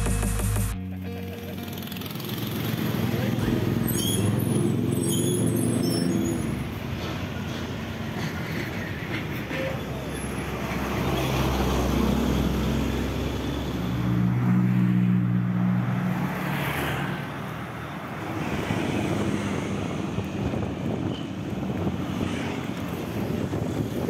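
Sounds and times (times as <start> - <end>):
road traffic: 0.0 - 24.0
wind noise on microphone: 18.4 - 24.0.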